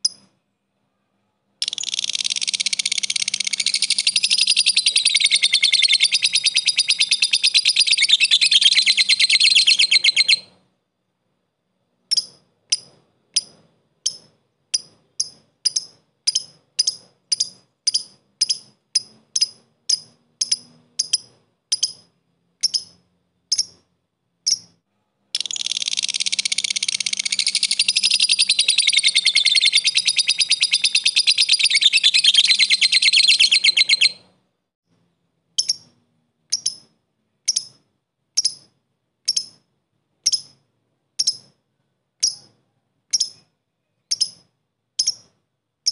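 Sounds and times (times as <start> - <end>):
lovebird sharp chirps: 0.0 - 0.4, 1.6 - 10.6, 12.0 - 34.3, 35.6 - 41.6, 42.2 - 45.9
lovebird chattering: 1.6 - 10.6, 12.1 - 23.8, 24.4 - 24.8, 25.4 - 34.3, 35.6 - 37.8, 38.4 - 39.6, 40.2 - 40.6, 41.2 - 41.5, 43.1 - 45.3.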